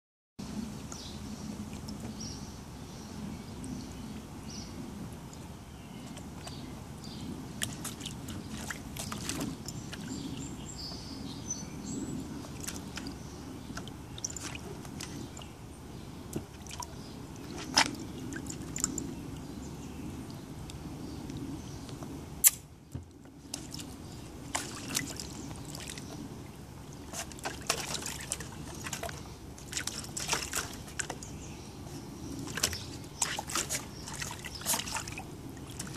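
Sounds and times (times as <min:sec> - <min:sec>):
dog splashing in shallow water: 0:07.5 - 0:10.5, 0:12.3 - 0:15.6, 0:16.3 - 0:19.2, 0:23.4 - 0:26.2, 0:26.8 - 0:31.4, 0:32.4 - 0:35.9
sharp click: 0:22.4 - 0:22.6.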